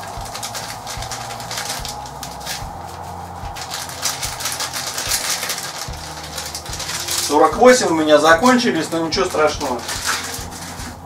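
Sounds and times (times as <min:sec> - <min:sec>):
paper packet crinkling: 0:00.0 - 0:11.0.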